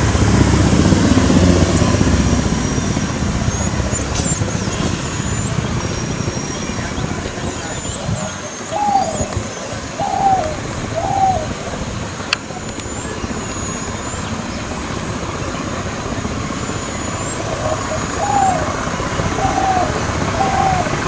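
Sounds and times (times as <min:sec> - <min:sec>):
bird hooting: 0:07.5 - 0:12.0, 0:16.7 - 0:21.0.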